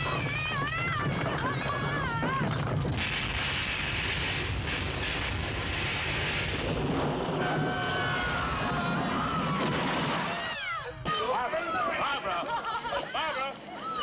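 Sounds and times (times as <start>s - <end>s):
earthquake rumble and crashing: 0.0s - 10.6s
faint high wail: 7.4s - 11.3s.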